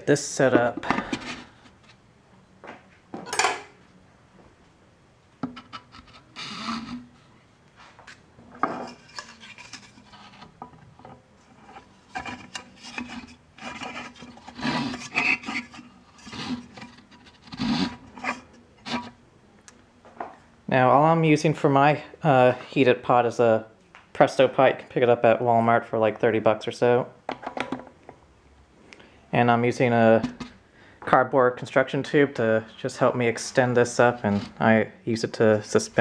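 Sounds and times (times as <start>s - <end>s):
metal rod sliding through cardboard: 5.8s - 7.2s, 8.8s - 10.6s, 11.4s - 19.2s
cardboard scraping and rubbing: 8.8s - 10.6s, 11.5s - 19.2s, 34.1s - 34.6s.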